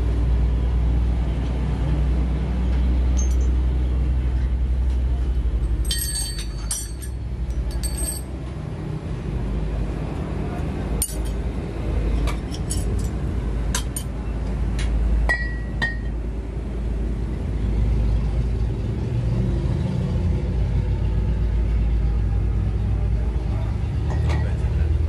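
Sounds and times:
low engine rumble: 0.0s - 25.0s
heavy steel parts clinking: 3.1s - 3.6s, 5.6s - 8.4s, 11.0s - 11.4s, 12.2s - 14.1s.

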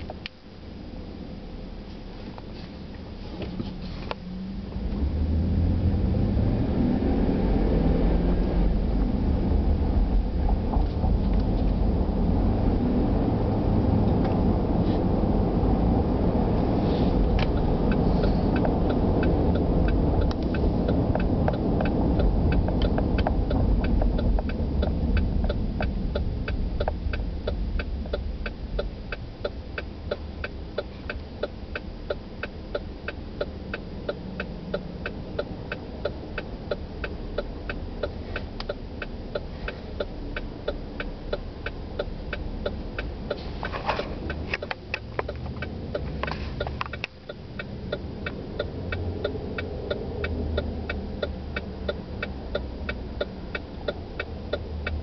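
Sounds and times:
car engine and road noise: 0.0s - 55.0s
turn signal ticking: 0.0s - 55.0s.

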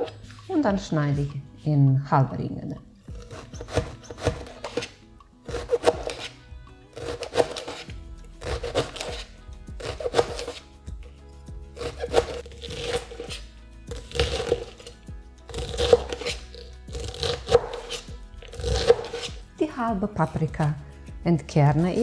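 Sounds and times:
background music: 0.0s - 22.0s
knife cutting on cutting board: 3.1s - 6.4s, 7.0s - 10.6s, 11.8s - 14.9s, 15.5s - 19.4s.

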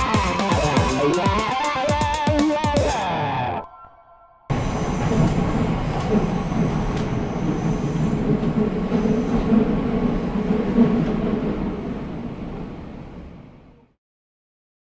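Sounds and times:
low rumbling noise: 4.5s - 14.0s.

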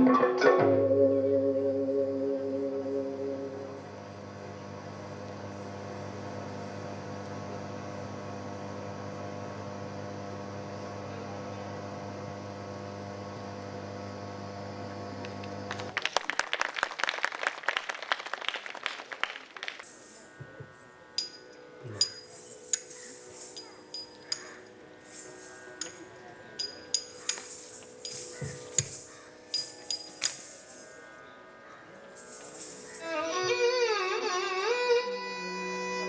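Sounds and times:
held musical drone: 0.0s - 10.2s, 19.2s - 36.0s
audience applause: 15.4s - 20.3s
bright metallic clinks: 21.2s - 31.2s, 32.1s - 33.2s.

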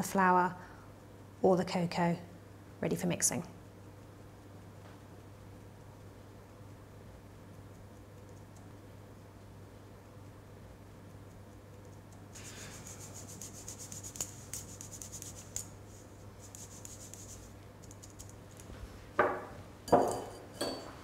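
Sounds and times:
sieve rasping and ticking: 11.5s - 18.7s.

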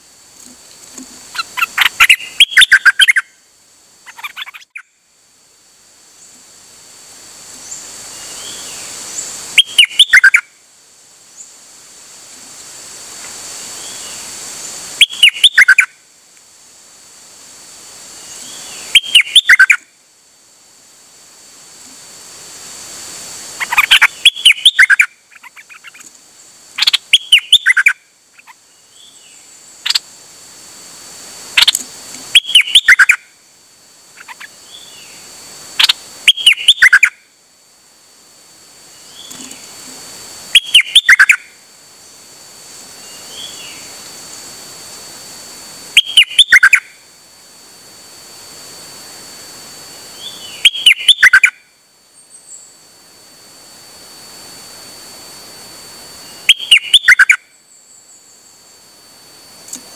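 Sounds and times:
songbird singing rapid phrases: 1.3s - 3.3s, 4.0s - 4.9s, 9.6s - 10.4s, 15.0s - 15.9s, 18.3s - 19.8s, 23.6s - 26.1s, 26.8s - 30.0s, 31.6s - 33.2s, 34.2s - 35.2s, 35.8s - 37.2s, 40.5s - 41.4s, 46.0s - 46.8s, 50.2s - 51.5s, 56.4s - 57.4s
soft single bird calls: 1.3s - 3.4s, 4.0s - 5.0s, 15.0s - 15.9s, 18.3s - 19.9s, 23.6s - 26.1s, 34.2s - 35.2s, 35.8s - 37.2s, 50.2s - 51.6s, 56.4s - 57.4s.

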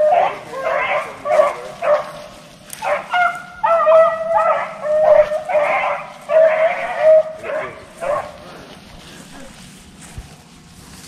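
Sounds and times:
beagles baying and barking: 0.0s - 8.8s.

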